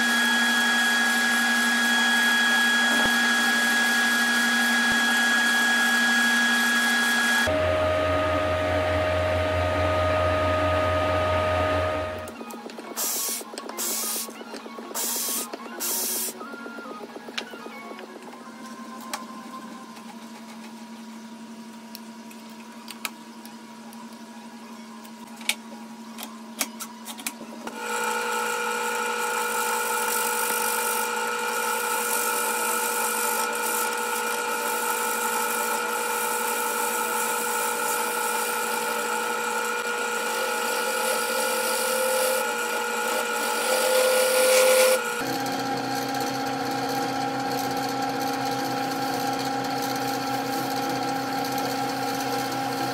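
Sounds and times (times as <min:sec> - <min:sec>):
turning tool cutting wood: 0:00.0 - 0:09.1, 0:27.7 - 0:52.9
wood lathe humming: 0:00.0 - 0:12.3, 0:27.8 - 0:52.9.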